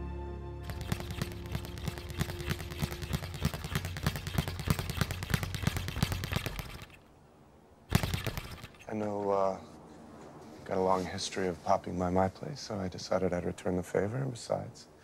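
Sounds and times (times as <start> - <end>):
background music: 0.0 - 3.3
speed bag rattling: 0.6 - 7.0, 7.9 - 8.9.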